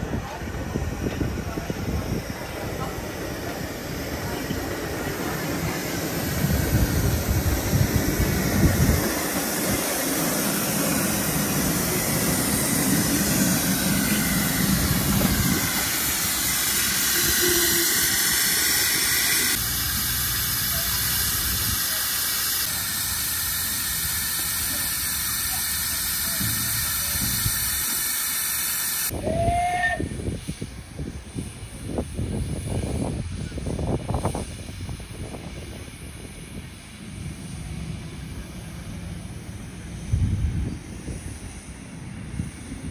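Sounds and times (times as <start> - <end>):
wind buffeting microphone: 0.0 - 19.6, 29.1 - 38.1, 39.5 - 42.9
steam hissing: 0.0 - 42.9.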